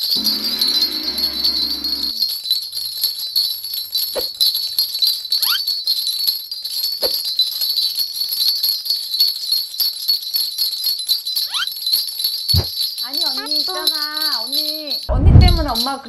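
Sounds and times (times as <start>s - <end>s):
brass bell rattle jingling: 0.0s - 16.0s.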